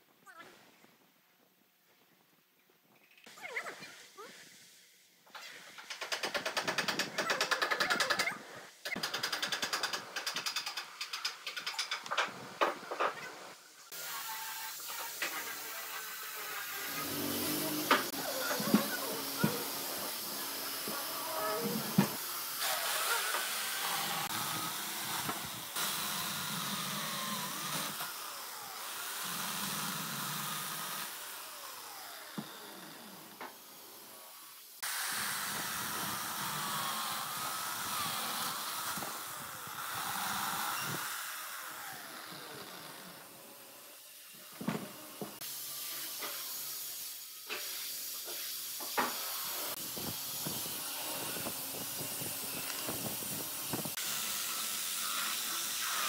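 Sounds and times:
electric chainsaw cutting wood: 0:13.9 - 0:56.0.

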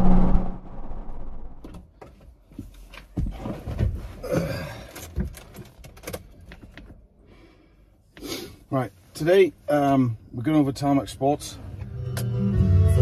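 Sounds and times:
car engine revving: 0:00.0 - 0:01.6.

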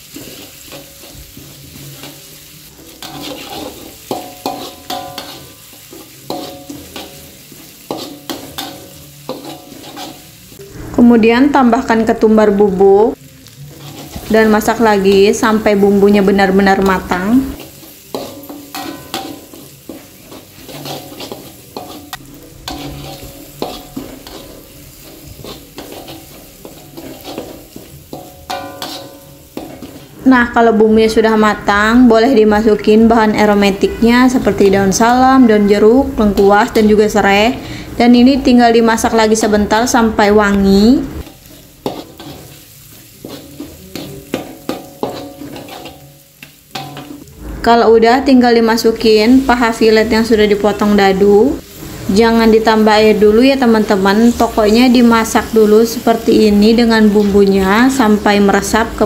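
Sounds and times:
metal spatula scraping a wok: 0:00.0 - 0:11.0, 0:13.5 - 0:30.3, 0:41.2 - 0:47.8, 0:48.7 - 0:59.0
paste sizzling in oil: 0:00.0 - 0:12.1, 0:13.0 - 0:59.0
metal spatula clinking in wok: 0:03.0 - 0:07.2, 0:17.6 - 0:24.6, 0:25.4 - 0:30.0, 0:43.2 - 0:47.1.

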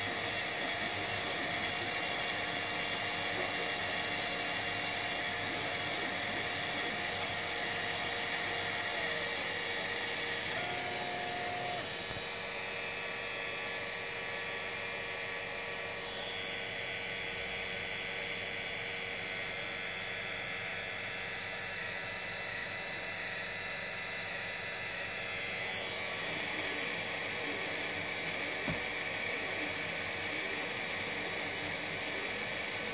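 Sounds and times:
stepper motors whining: 0:00.0 - 0:16.7
cooling fans whirring: 0:00.0 - 0:32.9.

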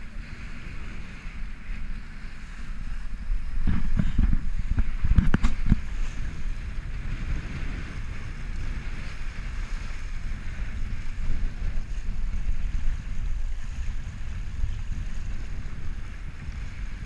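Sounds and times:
water rushing along hull: 0:00.0 - 0:17.0
wind buffeting microphone: 0:00.0 - 0:17.0.

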